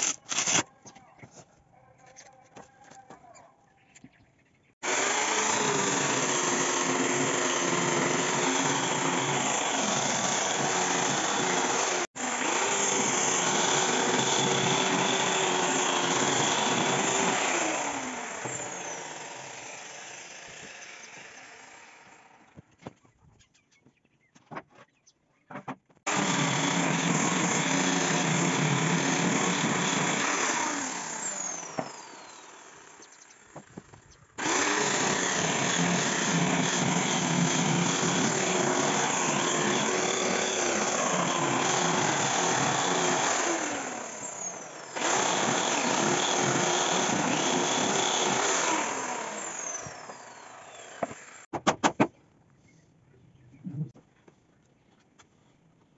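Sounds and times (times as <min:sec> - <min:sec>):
angle grinder sanding wood: 0:04.8 - 0:22.2, 0:26.1 - 0:33.7, 0:34.4 - 0:51.5.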